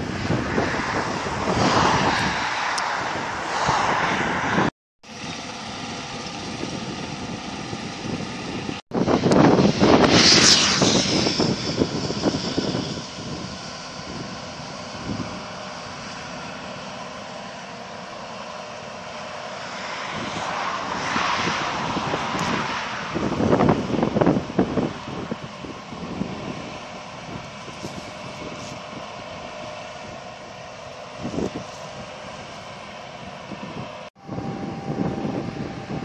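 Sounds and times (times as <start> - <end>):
loud rushing noise: 0.0 - 4.7, 8.9 - 13.0, 19.0 - 24.9
combine harvester drone: 0.0 - 36.0.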